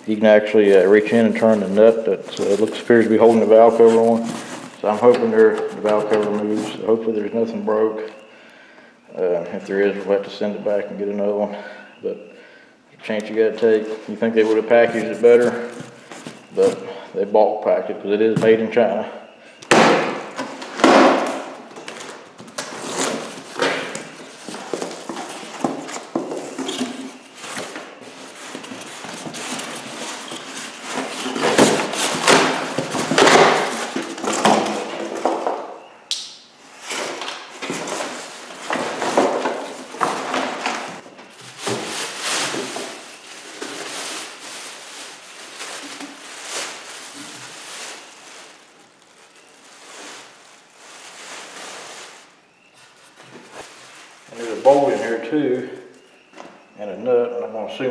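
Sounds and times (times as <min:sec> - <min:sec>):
plastic wrap crinkling: 0:00.0 - 0:08.3, 0:13.1 - 0:17.0, 0:19.7 - 0:35.9, 0:36.7 - 0:56.7
cardboard scraping: 0:00.6 - 0:07.1, 0:13.9 - 0:16.8, 0:19.7 - 0:35.6, 0:36.8 - 0:55.2.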